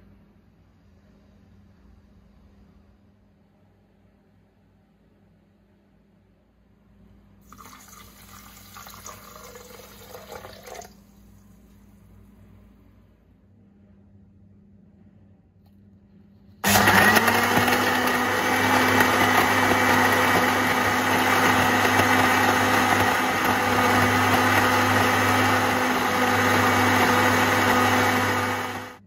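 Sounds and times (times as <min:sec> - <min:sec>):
blender motor running: 0:16.6 - 0:29.0.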